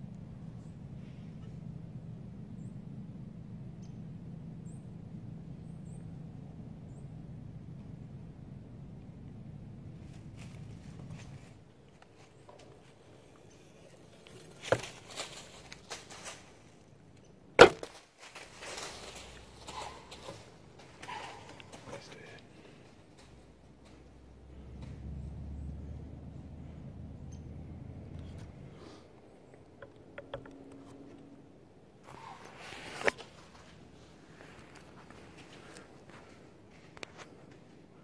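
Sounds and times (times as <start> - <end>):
low outdoor rumble: 0.0 - 38.0
light rustling: 10.0 - 25.0
camera handling rustling and scraping: 12.7 - 16.2, 32.0 - 33.4
sharp knocks: 17.6 - 18.0.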